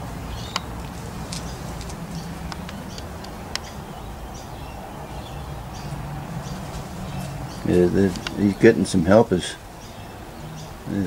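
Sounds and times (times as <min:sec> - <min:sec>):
honeybees humming: 0:00.0 - 0:11.0
light clicks: 0:00.4 - 0:03.8.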